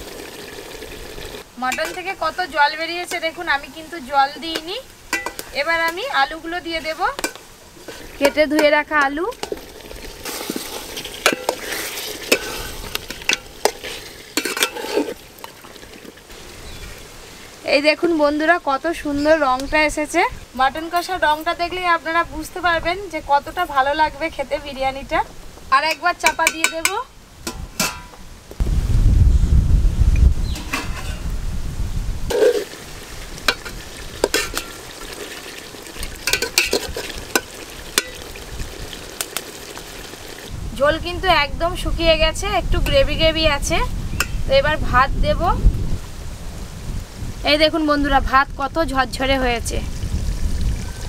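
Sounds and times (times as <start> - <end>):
meat sizzling: 0.0 - 17.2, 32.3 - 40.5
metal spatula scraping pot: 4.4 - 16.2, 30.5 - 31.3, 32.3 - 32.8, 33.5 - 38.2.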